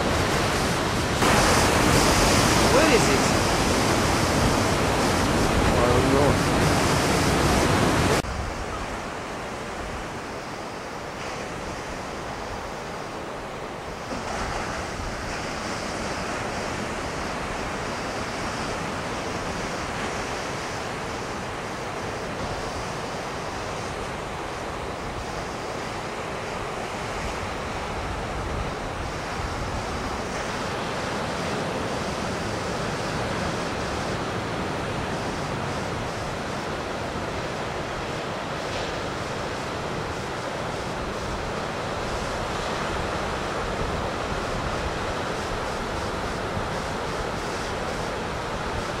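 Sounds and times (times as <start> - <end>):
wind buffeting microphone: 0.0 - 10.5
ocean surf breaking: 0.0 - 49.0.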